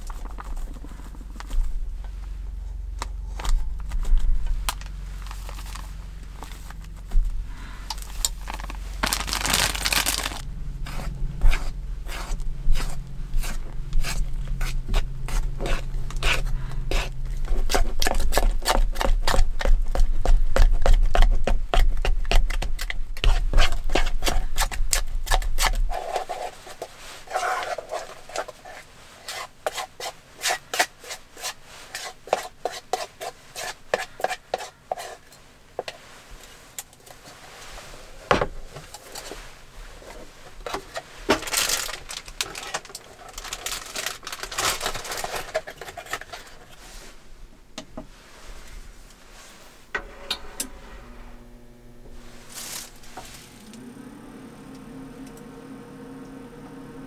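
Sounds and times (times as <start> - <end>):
low steady hum: 0.0 - 28.4, 35.3 - 57.0
rustle: 25.6 - 51.4, 52.2 - 53.7.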